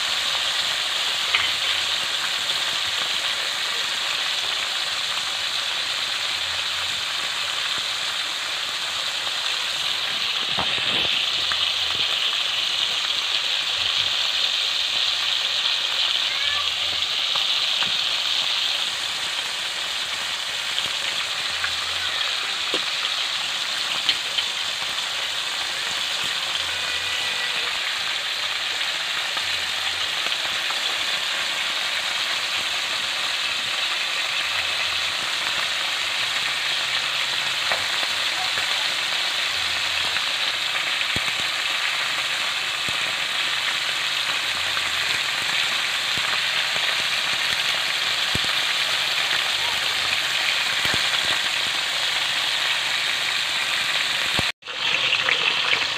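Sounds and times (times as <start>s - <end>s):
food sizzling in hot oil: 0.0s - 55.9s.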